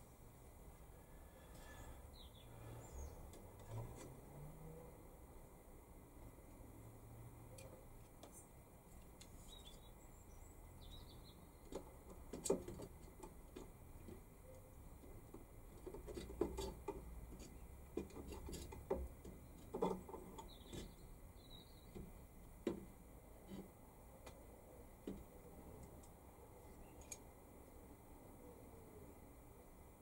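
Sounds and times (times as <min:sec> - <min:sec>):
light clicks and knocks of handling: 0:11.6 - 0:21.1, 0:26.8 - 0:27.4.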